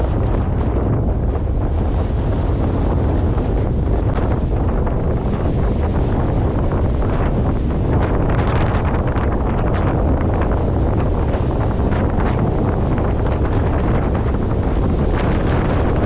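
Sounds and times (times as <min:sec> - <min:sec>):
bow wave splashing along hull: 0:00.0 - 0:16.0
wind buffeting microphone: 0:00.0 - 0:16.0.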